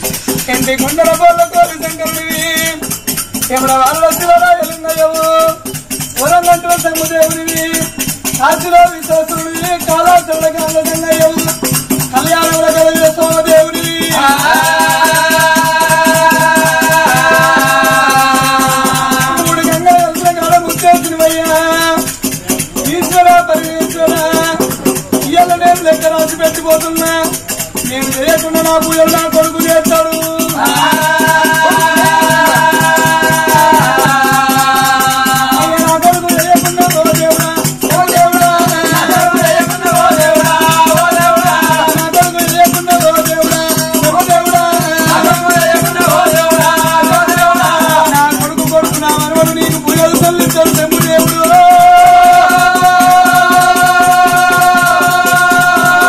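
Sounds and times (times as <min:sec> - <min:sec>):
fast rattling percussion: 0:00.0 - 0:56.0.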